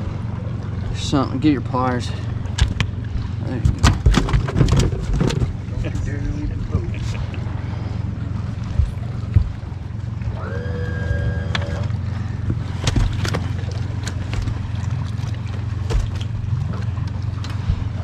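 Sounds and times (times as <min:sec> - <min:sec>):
boat motor idling: 0:00.0 - 0:18.0.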